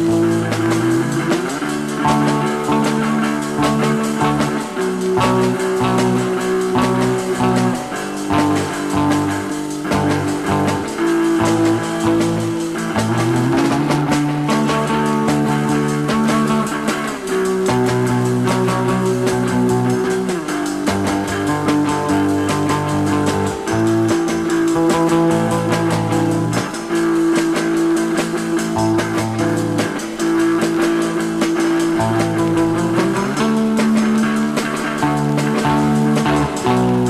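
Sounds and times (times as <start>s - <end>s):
surf rock instrumental: 0.0s - 37.0s.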